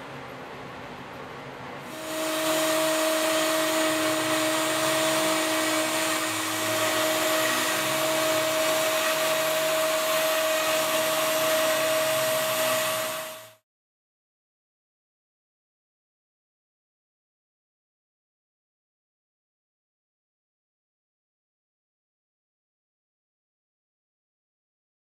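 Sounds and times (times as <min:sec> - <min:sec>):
router spindle whining while milling wood: 0:01.9 - 0:13.6.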